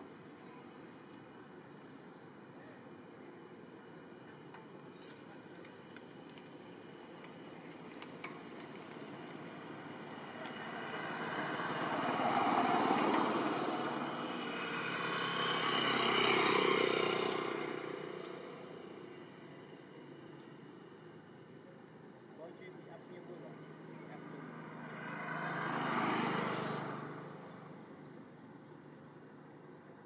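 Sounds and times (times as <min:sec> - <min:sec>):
motor vehicle passing: 0:09.4 - 0:19.0, 0:24.0 - 0:28.0.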